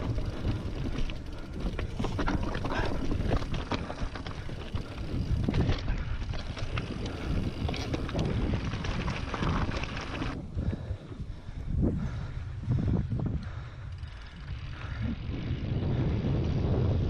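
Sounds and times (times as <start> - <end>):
bike tyres rolling over stones: 0.0 - 11.5
wind rumble on microphone: 0.0 - 17.0.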